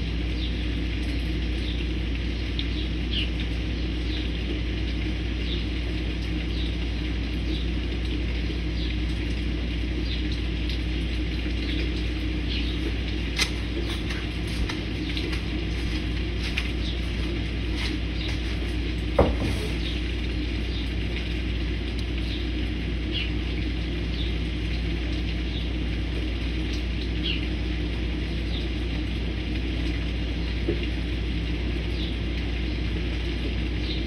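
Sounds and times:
steady low rumble: 0:00.0 - 0:27.0
small birds chirping: 0:11.7 - 0:18.9, 0:23.1 - 0:23.4.

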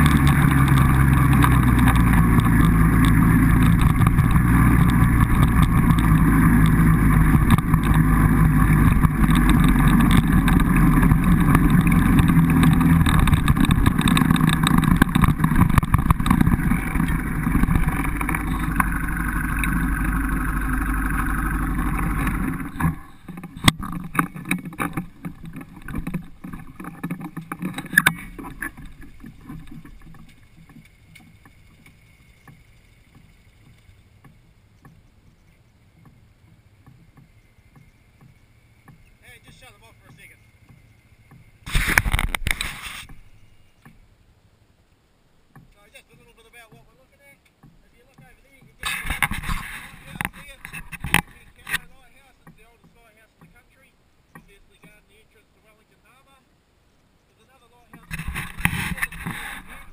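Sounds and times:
clicks and knocks: 0:00.0 - 0:20.2, 0:21.1 - 0:35.0, 0:47.5 - 0:53.6
quad bike engine running: 0:00.0 - 0:35.0, 0:58.0 - 0:59.9.

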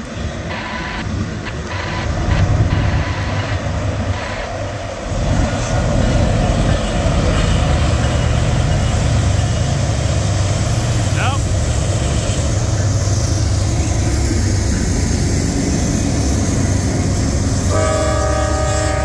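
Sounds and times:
freight train rumbling past: 0:00.0 - 0:19.0.

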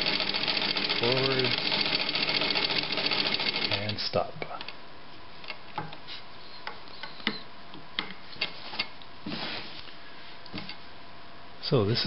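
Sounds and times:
sewing machine parts clicking: 0:00.0 - 0:03.8
cloth rustling: 0:08.3 - 0:10.0.

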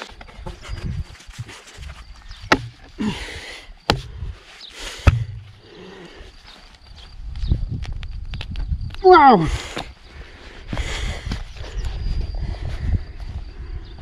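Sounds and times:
sharp knocks: 0:02.5 - 0:02.8, 0:05.1 - 0:05.5.

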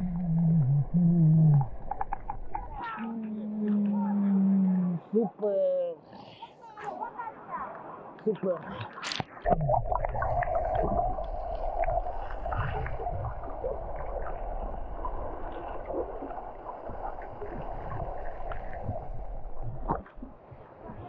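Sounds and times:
heavy low rumble: 0:00.0 - 0:02.8
muffled water sloshing: 0:00.0 - 0:04.3, 0:08.5 - 0:21.0.

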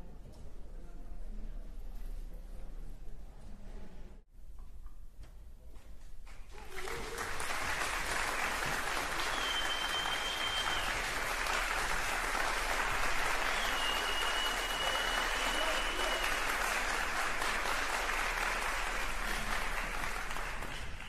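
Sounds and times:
audience applauding: 0:06.4 - 0:21.0.

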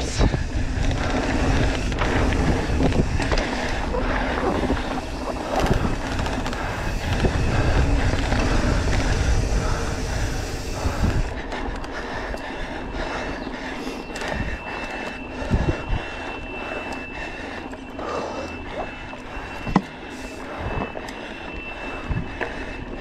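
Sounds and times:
wind noise on microphone: 0:00.0 - 0:12.3, 0:14.1 - 0:16.6, 0:21.6 - 0:23.0
bike rattling over bumps: 0:00.0 - 0:23.0
knobby tyres on dirt: 0:00.0 - 0:23.0.

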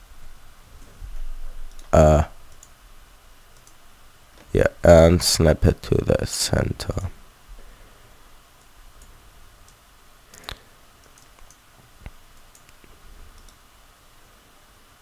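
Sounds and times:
mouse and keyboard clicks: 0:12.4 - 0:13.6.

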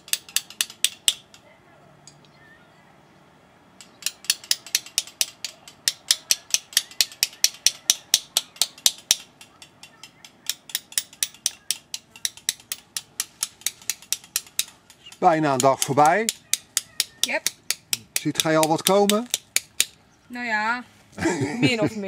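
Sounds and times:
hammer striking chisel on stone: 0:03.9 - 0:20.0.

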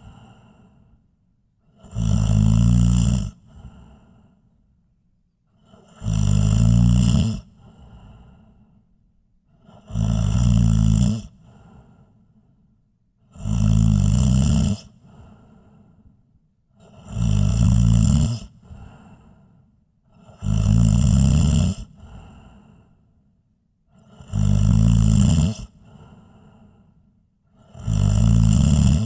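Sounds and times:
faint breath: 0:00.0 - 0:02.1, 0:03.2 - 0:06.2, 0:07.3 - 0:10.0, 0:11.2 - 0:13.2, 0:14.8 - 0:17.2, 0:18.3 - 0:20.5, 0:21.7 - 0:24.4, 0:25.5 - 0:27.9
person snoring loudly: 0:01.6 - 0:04.2, 0:05.6 - 0:08.4, 0:09.6 - 0:11.5, 0:13.3 - 0:15.5, 0:16.8 - 0:18.6, 0:20.2 - 0:22.4, 0:23.9 - 0:26.0, 0:27.5 - 0:29.0.

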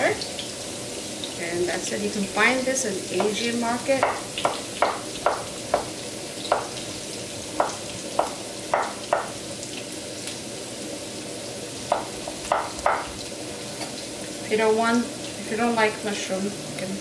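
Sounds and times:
steady hiss: 0:00.0 - 0:16.9
knife chopping on wooden board: 0:04.0 - 0:06.8, 0:07.6 - 0:09.4, 0:11.9 - 0:13.2.

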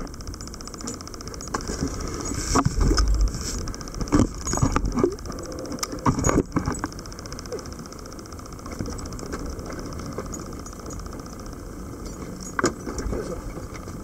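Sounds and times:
water sloshing against hull: 0:00.9 - 0:07.7.

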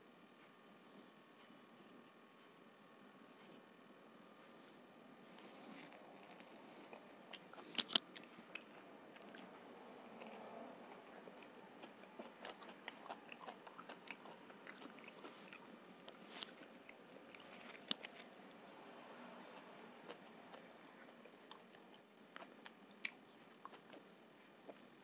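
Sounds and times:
person chewing with wet smacks: 0:04.5 - 0:25.0.

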